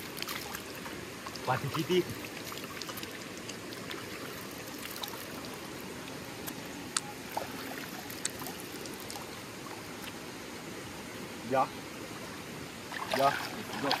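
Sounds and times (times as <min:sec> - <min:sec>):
stream running over rocks: 0:00.0 - 0:14.0
water splashing by hand: 0:12.9 - 0:14.0.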